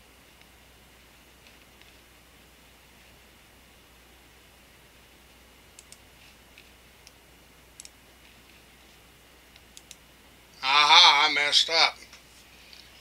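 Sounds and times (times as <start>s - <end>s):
faint low hum: 0.0s - 13.0s
computer mouse clicks: 5.7s - 8.6s, 9.5s - 10.0s.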